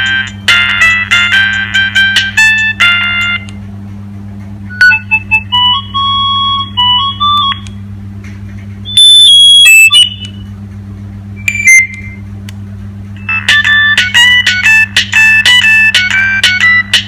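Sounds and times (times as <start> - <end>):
phone ringtone beeping melodies: 0.0 - 3.5, 4.7 - 7.6, 13.2 - 17.0.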